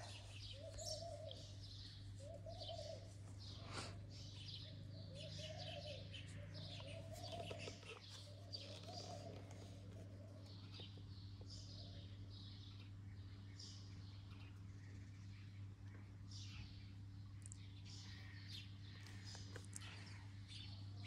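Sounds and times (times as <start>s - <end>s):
cooing call: 0.0s - 10.8s
birds chirping and twittering: 0.0s - 21.0s
steady low hum: 0.0s - 21.0s.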